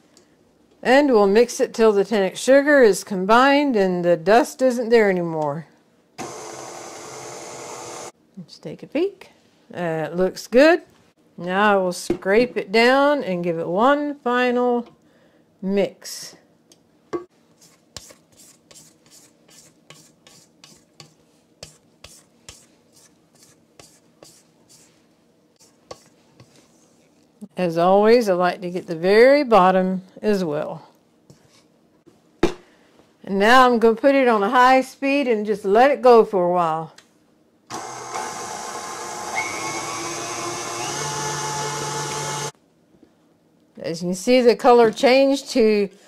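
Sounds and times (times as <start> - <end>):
stand mixer motor whirring: 6.2 - 8.1, 37.8 - 42.5
spatula scraping a metal bowl: 17.6 - 25.0, 25.6 - 27.2.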